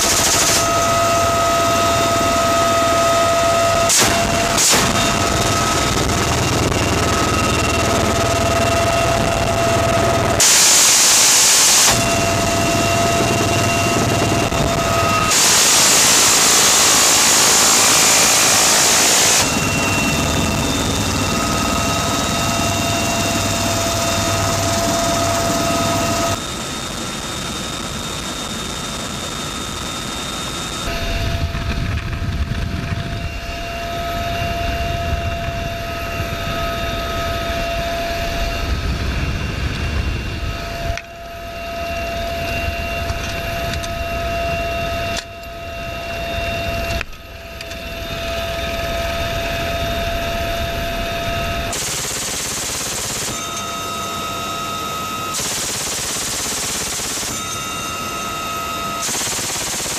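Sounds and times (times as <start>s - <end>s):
minigun firing bursts: 0.0s - 0.7s, 10.4s - 26.4s, 51.7s - 53.6s, 55.3s - 57.7s, 59.0s - 59.9s
helicopter turbine and rotor: 0.0s - 59.9s.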